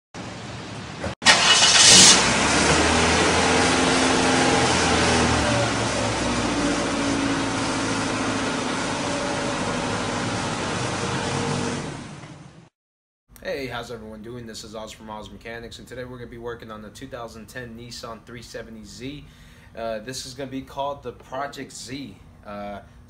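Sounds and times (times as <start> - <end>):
car engine starting and running: 0.2 - 12.7.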